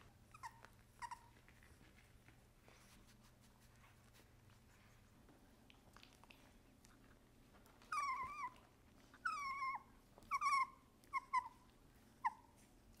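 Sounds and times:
puppy whining: 0.0s - 2.4s, 5.9s - 13.0s.

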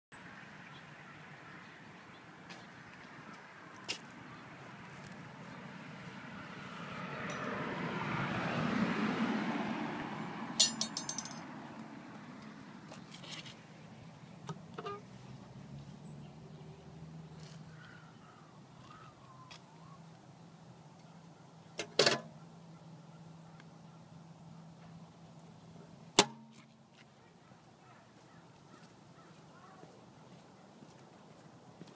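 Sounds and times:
car passing: 0.3s - 13.1s, 15.0s - 19.2s
metal lid clacking: 10.6s - 11.4s
metal mailbox rattling: 10.6s - 11.4s.

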